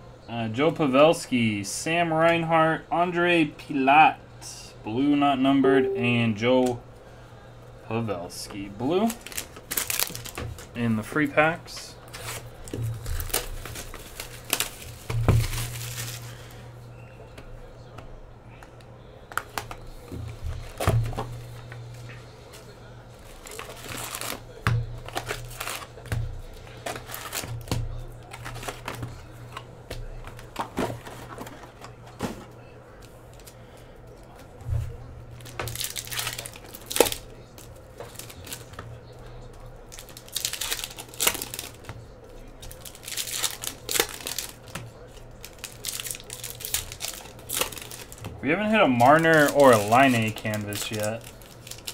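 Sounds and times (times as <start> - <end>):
wrappers crinkling and tearing: 8.7 - 16.6, 19.3 - 32.0, 35.3 - 51.9.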